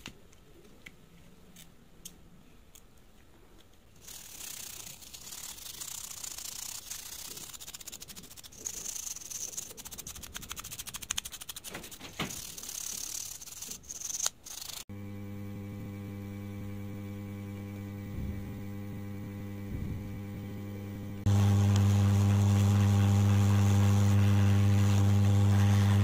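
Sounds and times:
toothbrush scrubbing circuit board: 0:04.0 - 0:14.8.

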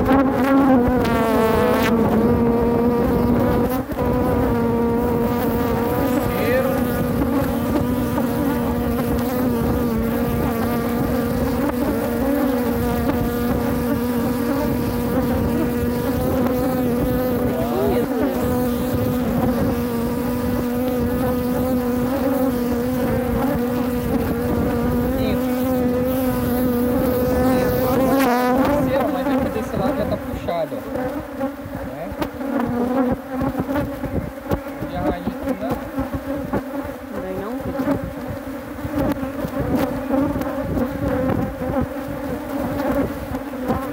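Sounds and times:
honeybees buzzing: 0:00.0 - 0:43.9.

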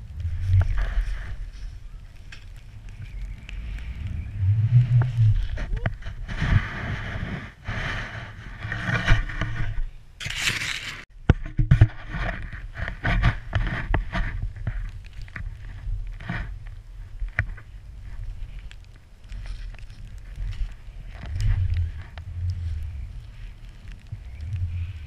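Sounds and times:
wind rushing over microphone: 0:00.0 - 0:10.0, 0:11.5 - 0:25.0
snowboard sliding through powder snow: 0:00.1 - 0:09.3
snow brushing against camera: 0:00.1 - 0:09.6.

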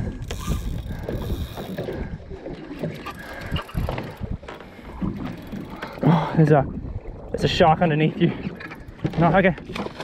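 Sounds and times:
wind buffeting microphone: 0:00.0 - 0:09.9
water slapping against boat hull: 0:08.3 - 0:10.0.

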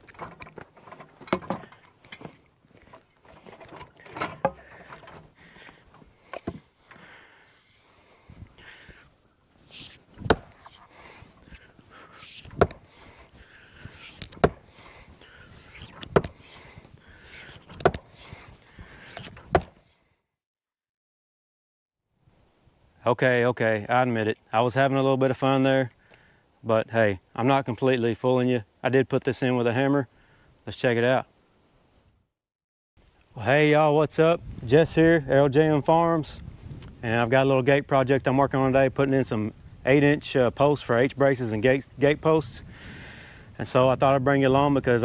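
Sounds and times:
hammer knocking on wooden post: 0:14.4 - 0:14.6.

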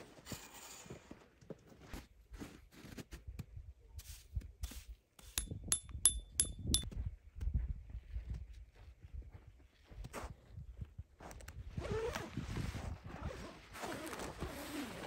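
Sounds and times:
hammer striking metal stake: 0:05.2 - 0:06.9.

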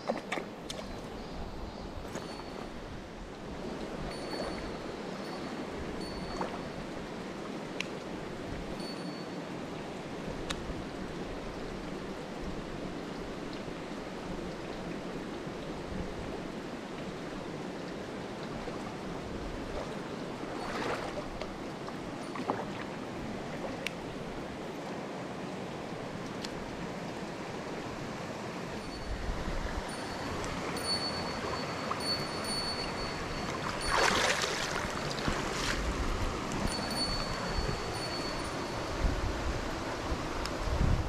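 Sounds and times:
stream flowing over rocks: 0:09.4 - 0:40.5.

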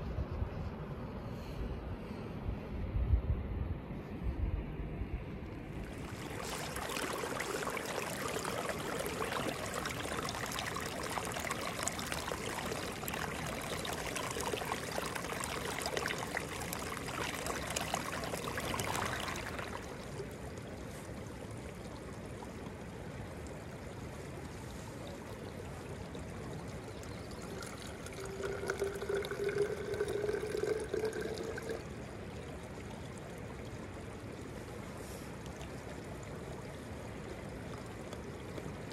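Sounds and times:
water trickling into a bottle: 0:05.5 - 0:34.8
water rushing: 0:05.5 - 0:38.0.

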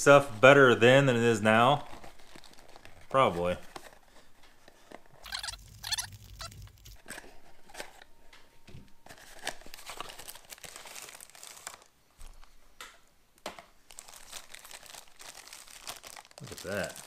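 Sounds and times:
cardboard and plastic bag rustling: 0:01.5 - 0:08.0, 0:09.1 - 0:12.4, 0:13.9 - 0:17.0.

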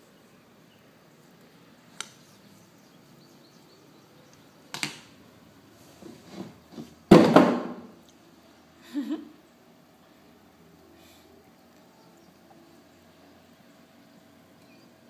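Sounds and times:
loud knock on work board: 0:07.1 - 0:07.8.

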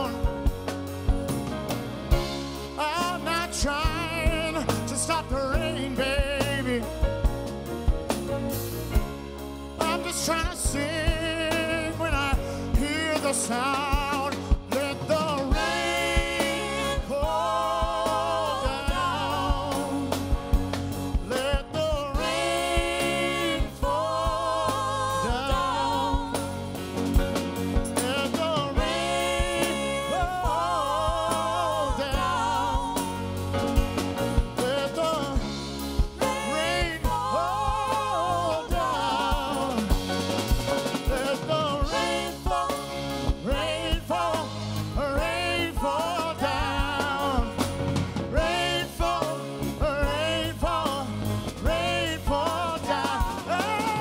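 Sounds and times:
lead singer: 0:00.0 - 0:54.0
live soul band playing: 0:00.0 - 0:54.0
steady drum beat: 0:00.0 - 0:54.0
backing vocals: 0:14.7 - 0:20.3, 0:27.9 - 0:33.4.

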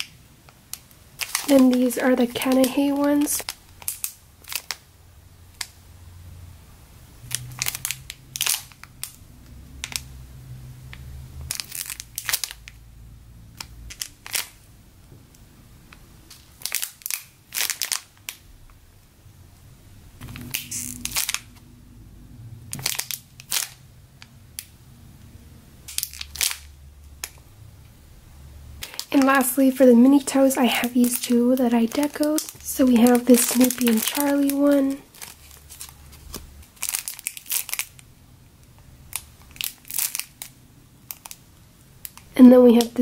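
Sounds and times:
plastic bags crinkling: 0:00.7 - 0:04.9, 0:07.3 - 0:09.2, 0:11.5 - 0:12.8, 0:13.6 - 0:14.7, 0:16.2 - 0:18.4, 0:20.2 - 0:21.6, 0:22.7 - 0:24.7, 0:25.9 - 0:27.4, 0:28.8 - 0:38.1, 0:39.0 - 0:43.0.

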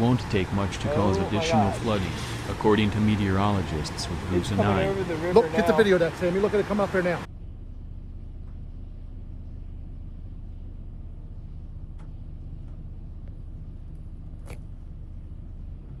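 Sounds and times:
steady low rumble: 0:07.2 - 0:16.0.

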